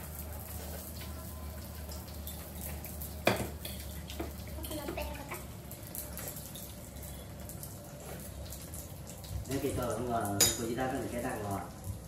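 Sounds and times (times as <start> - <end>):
cutlery and dishes clinking: 10.3 - 10.8.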